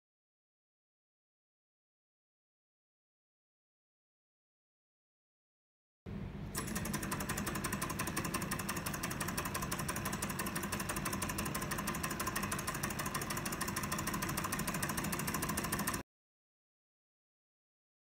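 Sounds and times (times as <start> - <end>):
stirling engine mechanical ticking: 6.6 - 16.0.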